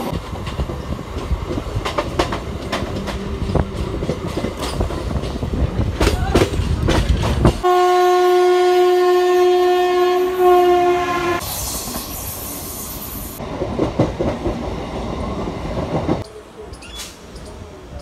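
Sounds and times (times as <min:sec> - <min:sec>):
train rumble and clatter: 0:00.0 - 0:08.1, 0:10.6 - 0:18.0
train horn blast: 0:07.6 - 0:11.4.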